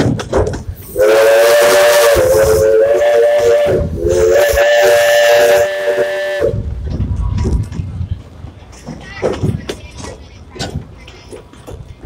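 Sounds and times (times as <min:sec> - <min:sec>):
steam hissing: 0:00.7 - 0:06.7
steam locomotive whistle: 0:00.9 - 0:06.6.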